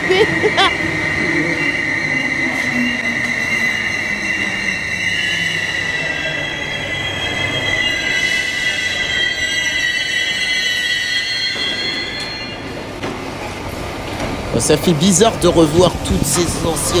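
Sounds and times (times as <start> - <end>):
train brakes squealing: 0.0 - 13.0.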